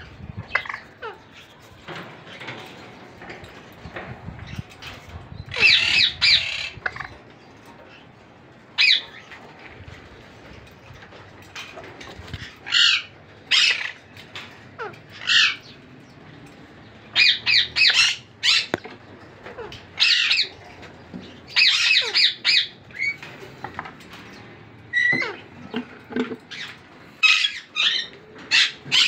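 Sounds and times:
parakeet squawking: 5.5 - 7.2, 12.4 - 14.0, 14.8 - 15.7, 17.2 - 18.8, 19.4 - 23.2, 24.9 - 25.8, 26.5 - 29.0.

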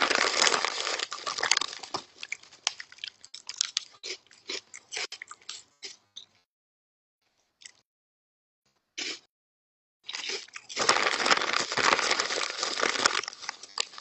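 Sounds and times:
hand rummaging in chip bag: 0.0 - 2.0, 10.8 - 14.0
potato chips crunched and chewed: 0.0 - 5.6, 10.1 - 14.0.

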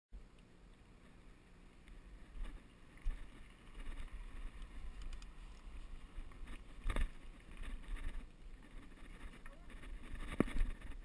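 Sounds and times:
wind rumbling on microphone: 2.1 - 11.0
bike knocks and rattles: 6.4 - 11.0.

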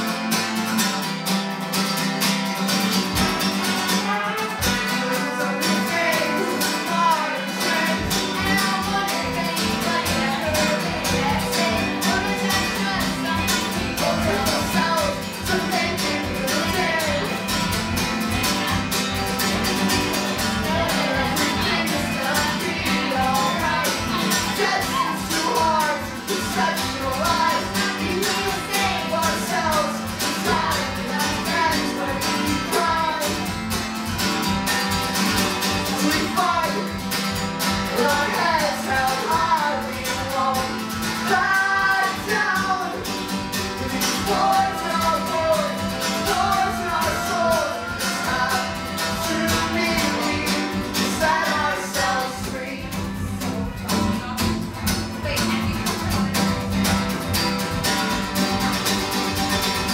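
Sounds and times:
acoustic guitar playing: 0.0 - 59.9
women singing together: 5.2 - 17.4, 20.5 - 33.4, 37.9 - 43.0, 43.8 - 53.2.

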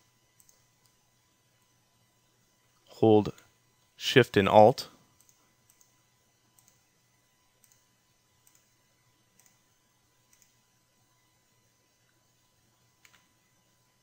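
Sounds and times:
faint computer mouse clicks: 0.4 - 1.0, 5.2 - 5.9, 6.6 - 6.8, 7.6 - 7.8, 8.4 - 8.7, 10.3 - 10.6, 13.0 - 13.3.

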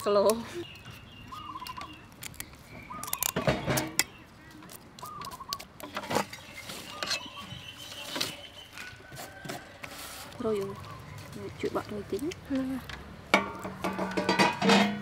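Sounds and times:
bird calling: 0.0 - 9.7, 10.4 - 12.8.

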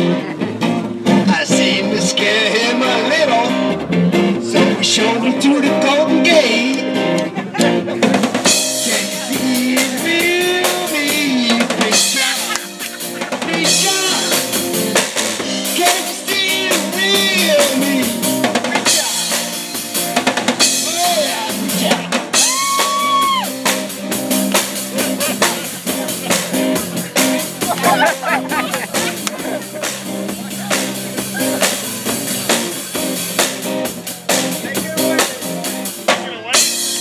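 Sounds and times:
drum kit beat: 0.0 - 37.0
electric guitar: 0.0 - 37.0
rock band playing: 0.0 - 37.0.

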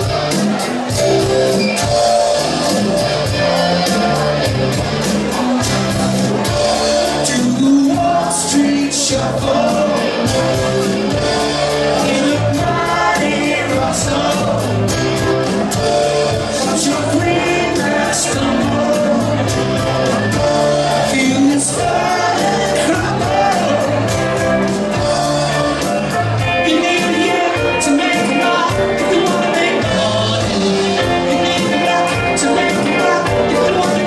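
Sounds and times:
live rock band playing: 0.0 - 34.0
lead vocals: 7.0 - 34.0.

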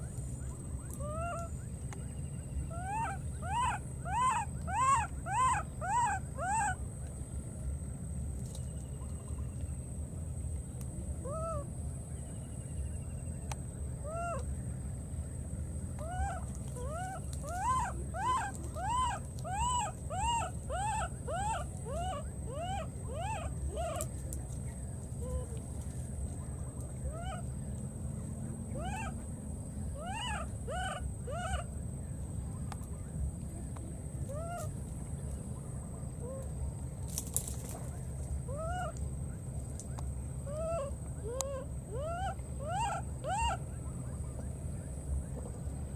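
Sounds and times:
baby macaque crying: 16.0 - 24.0, 30.0 - 31.6.

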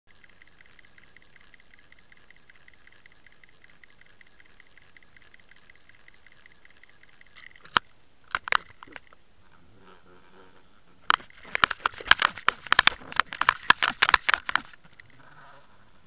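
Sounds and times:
faint fast ticking underwater: 0.1 - 7.4
sharp clicks: 0.1 - 9.2, 11.0 - 15.2.

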